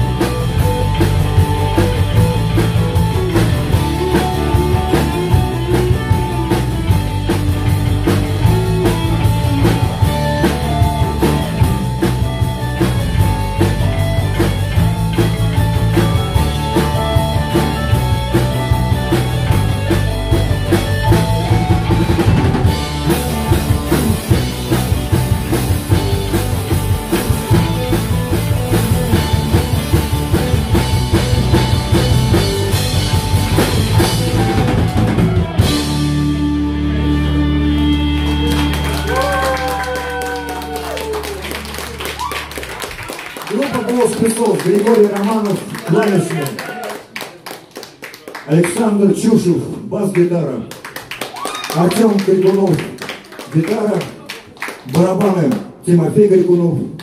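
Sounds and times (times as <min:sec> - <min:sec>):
drum kit beat: 0:00.0 - 0:40.7
electric keyboard: 0:00.0 - 0:44.0
bass: 0:00.0 - 0:47.2, 0:48.5 - 0:57.0.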